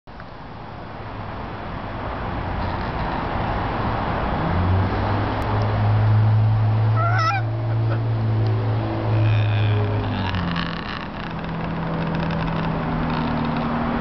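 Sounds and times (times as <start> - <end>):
macaw call: 7.0 - 8.0.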